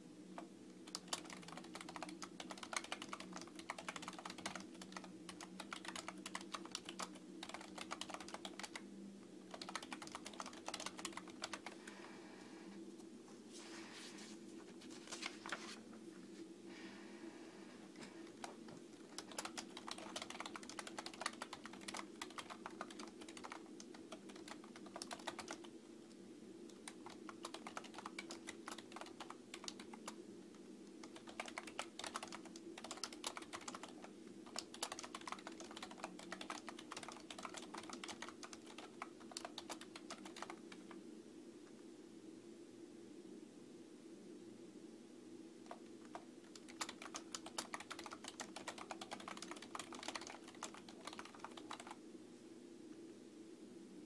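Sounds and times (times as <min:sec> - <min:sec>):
steady low hum: 0:00.0 - 0:54.0
computer keyboard key clicks: 0:00.9 - 0:08.8, 0:09.5 - 0:11.8, 0:19.1 - 0:25.6, 0:26.8 - 0:30.2, 0:31.0 - 0:40.9, 0:45.7 - 0:52.0.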